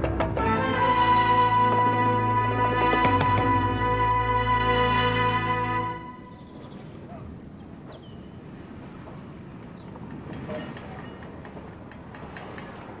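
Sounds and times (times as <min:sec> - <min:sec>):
bird chirps: 0:06.1 - 0:07.0, 0:07.6 - 0:10.0.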